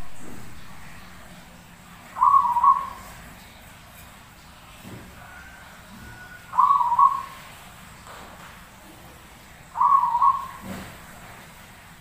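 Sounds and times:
dove cooing: 2.1s - 3.3s, 5.3s - 7.6s, 9.8s - 10.8s.

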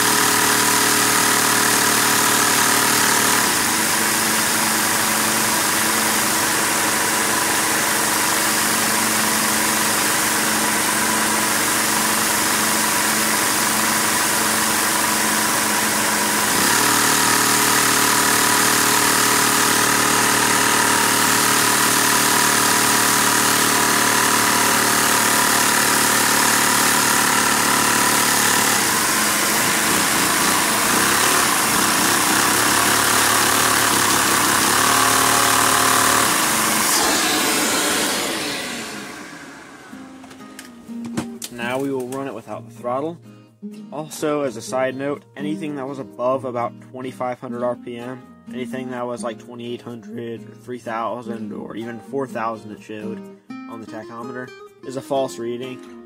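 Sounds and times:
small vacuum engine running with whine: 0.0s - 40.4s.

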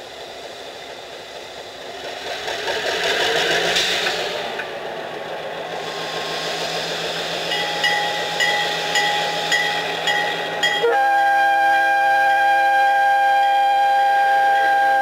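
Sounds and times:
diesel locomotive engine running: 0.0s - 15.0s
locomotive bell ringing: 7.5s - 11.2s.

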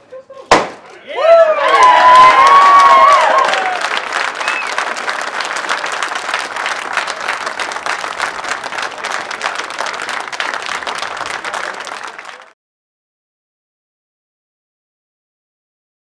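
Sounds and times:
crowd applauding: 1.2s - 12.6s.

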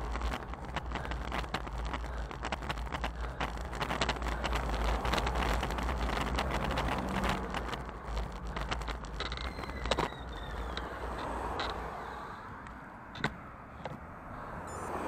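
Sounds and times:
wind buffeting microphone: 0.0s - 13.4s
tyre and road noise: 0.0s - 15.0s
cars driving past: 3.9s - 15.0s.

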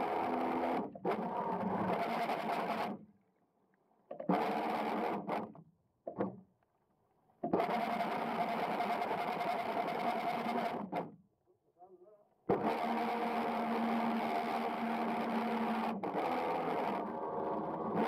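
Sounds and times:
electric motors whirring underwater: 0.0s - 3.0s, 4.2s - 5.5s, 7.5s - 11.0s, 12.5s - 18.0s.

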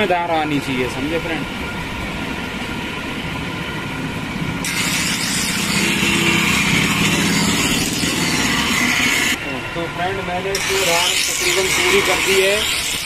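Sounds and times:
grinding wheel humming: 2.0s - 13.0s
blade grinding with a hiss: 4.6s - 9.4s, 10.5s - 13.0s.

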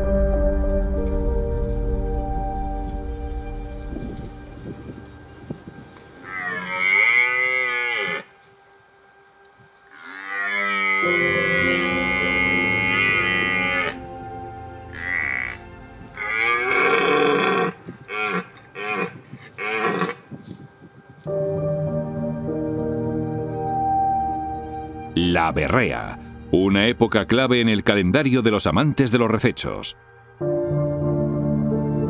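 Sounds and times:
deer stag roaring: 6.2s - 8.4s, 9.9s - 14.1s, 14.9s - 20.2s.

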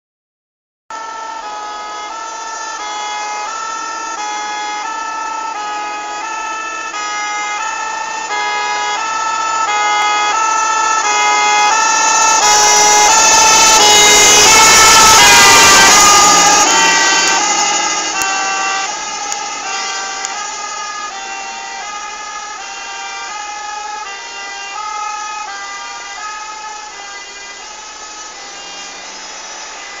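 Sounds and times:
two-tone fire engine siren: 0.9s - 30.0s.

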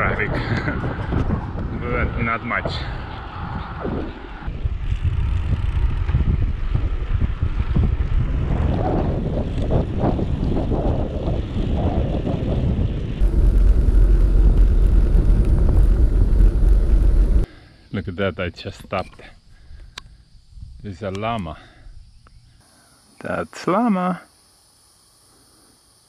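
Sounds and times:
wind buffeting microphone: 0.0s - 17.5s.

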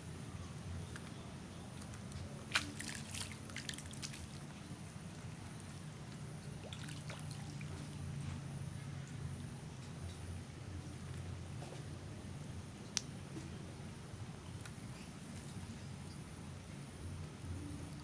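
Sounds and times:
bait pattering onto water: 2.5s - 4.4s.

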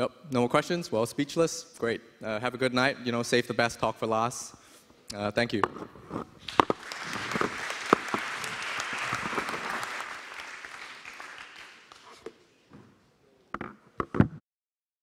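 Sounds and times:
audience applauding: 6.4s - 12.3s.

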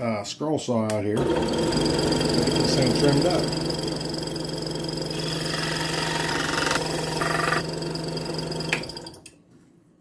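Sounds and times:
scroll saw cutting wood: 1.2s - 9.0s.

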